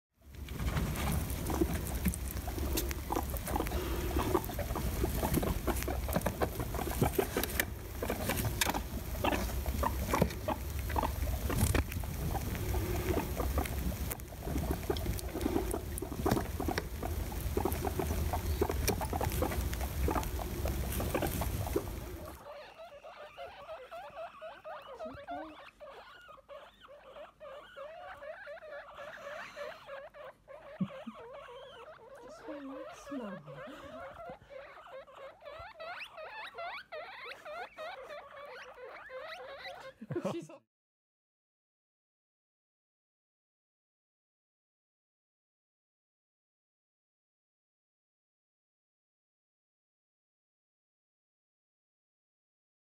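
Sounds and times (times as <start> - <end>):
rustling: 0.2 - 39.8
guinea pigs squeaking: 0.3 - 40.1.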